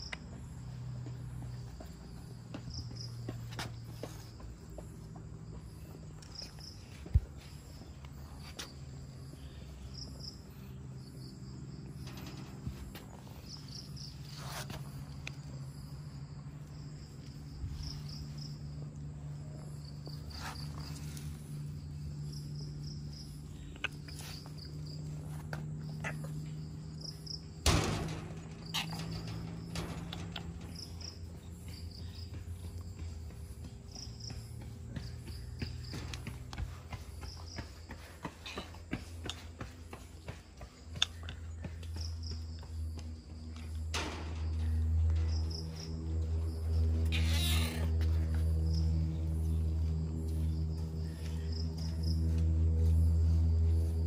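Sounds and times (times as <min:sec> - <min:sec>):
crickets chirping: 0:00.0 - 0:54.0
steady low hum: 0:00.0 - 0:54.0.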